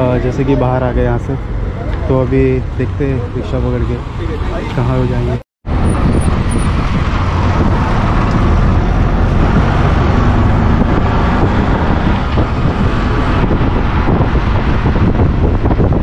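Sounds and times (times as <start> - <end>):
wind buffeting microphone: 5.2 - 16.0.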